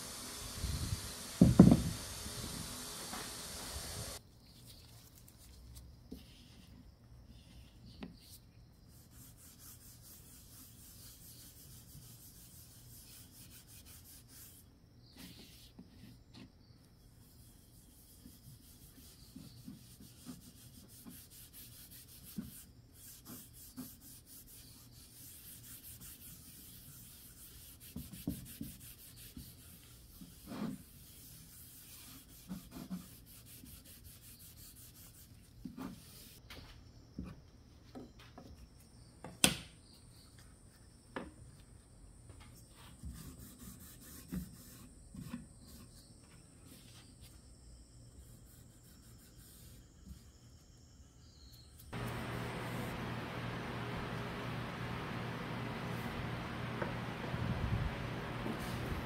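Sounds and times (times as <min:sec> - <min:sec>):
steady hiss: 0:00.0 - 0:04.2, 0:52.0 - 0:59.0
hand rubbing on wood: 0:52.0 - 0:59.0.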